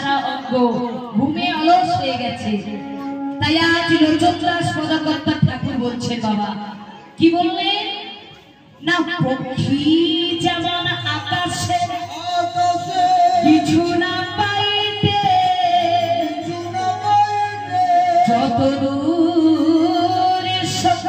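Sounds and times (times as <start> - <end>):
devotional singing: 11.7 - 21.0.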